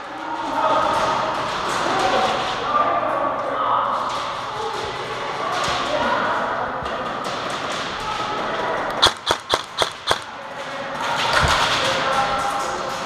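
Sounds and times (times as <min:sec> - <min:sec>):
airsoft rifle shots: 0:08.9 - 0:10.4.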